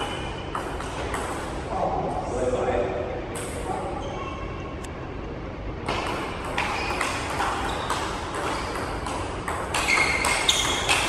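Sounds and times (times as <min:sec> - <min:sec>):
table tennis ball tapping: 0:00.0 - 0:01.4, 0:05.9 - 0:11.0.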